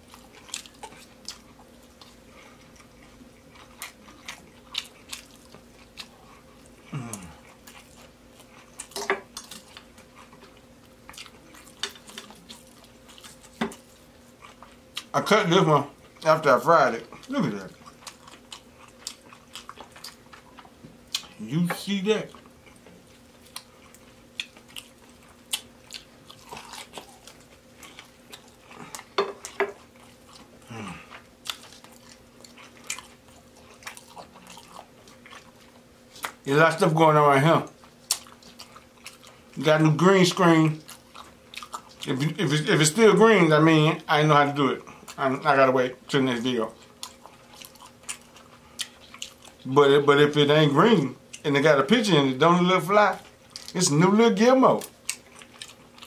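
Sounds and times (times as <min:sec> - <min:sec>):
chewing: 0:00.0 - 0:15.1, 0:17.0 - 0:36.8, 0:37.6 - 0:42.8, 0:44.8 - 0:50.1, 0:53.1 - 0:53.9, 0:54.7 - 0:56.0
faint steady hum: 0:00.0 - 0:56.0
person humming in enjoyment: 0:06.9 - 0:07.4, 0:30.7 - 0:31.1.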